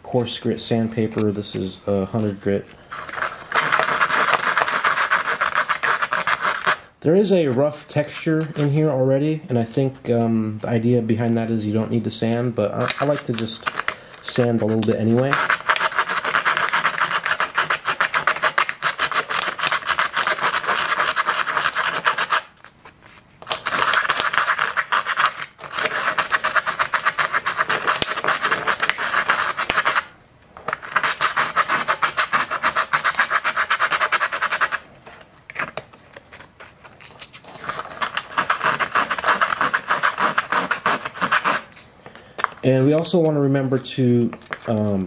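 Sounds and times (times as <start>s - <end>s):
sandpaper rasping by hand: 3.0s - 6.8s, 14.4s - 22.5s, 23.6s - 30.1s, 30.9s - 34.8s, 37.6s - 41.7s.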